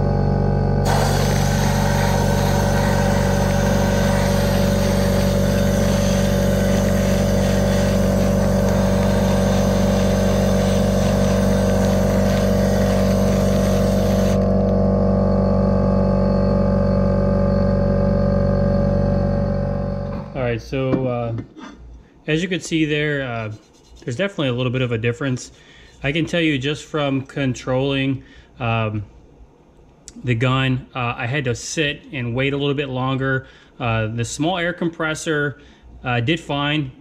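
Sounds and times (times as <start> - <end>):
air compressor running: 0.0 - 20.5
sandblaster hissing: 0.8 - 14.4.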